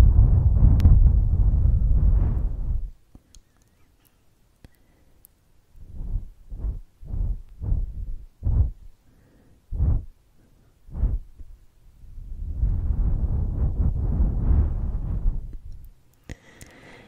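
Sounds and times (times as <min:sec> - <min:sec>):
breath puffs on microphone: 0:05.8 - 0:11.4, 0:16.3 - 0:17.0.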